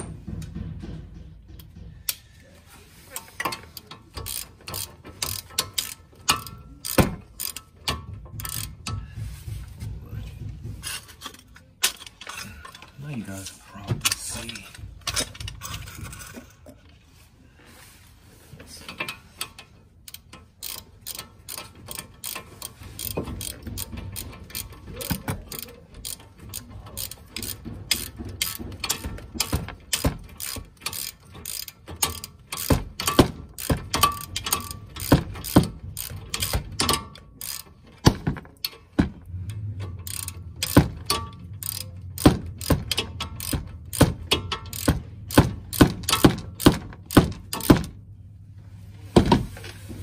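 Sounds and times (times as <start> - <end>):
ratchet wrench clicking: 3.2 - 9.0, 18.9 - 48.0.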